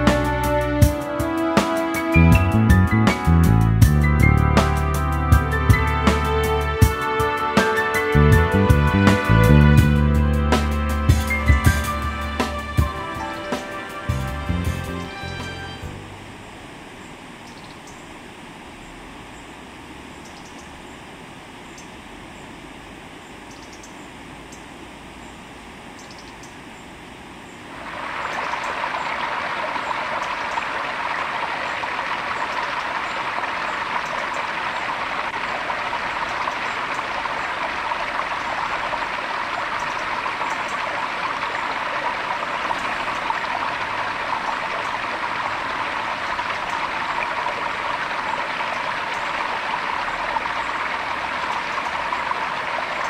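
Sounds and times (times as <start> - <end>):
stream rushing over rocks: 5.6 - 9.4, 12.0 - 17.5, 27.2 - 53.0.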